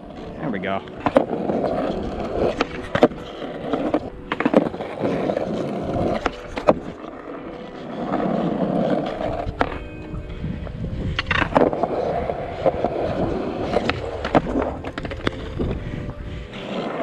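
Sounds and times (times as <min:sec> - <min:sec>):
skateboard wheels rolling on asphalt: 0:00.0 - 0:17.0
skateboard clacks: 0:00.9 - 0:09.8, 0:11.1 - 0:15.8.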